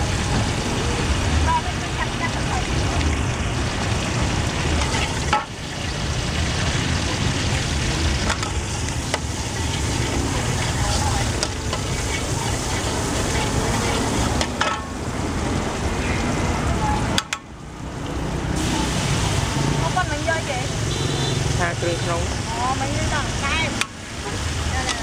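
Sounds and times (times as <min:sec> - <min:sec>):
oil sizzling in a wok: 0:00.0 - 0:25.0
spatula scraping metal pan: 0:08.2 - 0:14.9.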